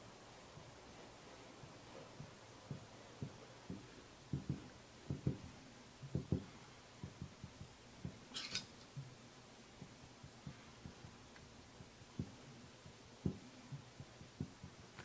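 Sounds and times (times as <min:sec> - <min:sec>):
iron tapping on paper: 0:01.6 - 0:08.2, 0:09.8 - 0:15.0.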